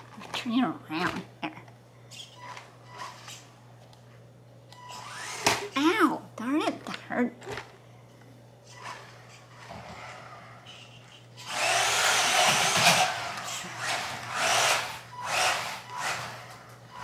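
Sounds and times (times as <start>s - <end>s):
rc truck motor and tyres whirring: 4.9s - 5.5s, 11.4s - 17.0s.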